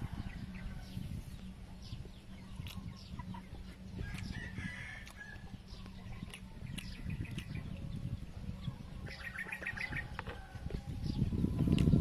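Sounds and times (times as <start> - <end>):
low steady hum: 0.0 - 12.0
short chirping bird calls: 8.6 - 10.2.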